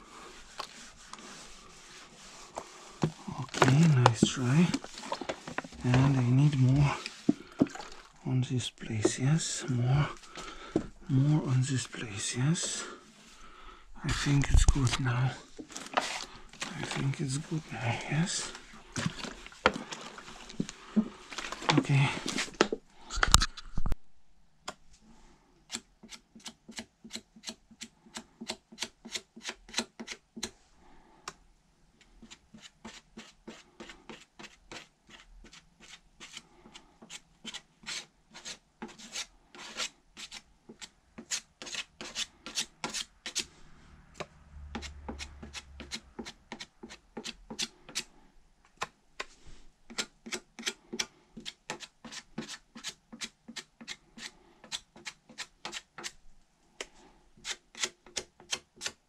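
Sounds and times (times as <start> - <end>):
hand sanding on metal: 0.2 - 7.4.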